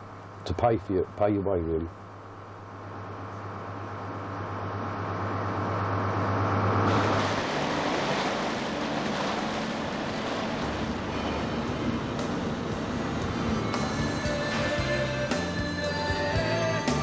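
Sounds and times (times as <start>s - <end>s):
boat engine drone: 0.0s - 17.0s
sea water splashing along hull: 4.1s - 15.5s.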